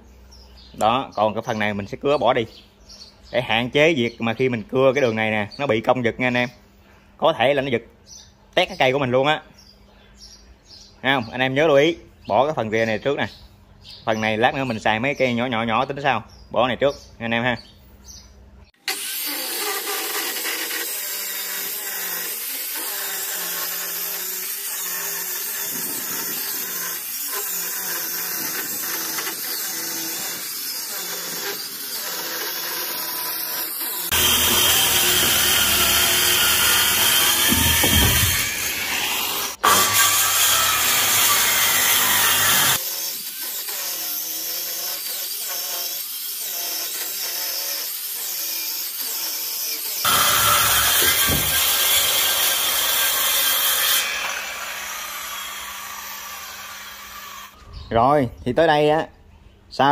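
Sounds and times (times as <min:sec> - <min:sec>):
circular saw cutting wood: 0:18.8 - 0:57.6.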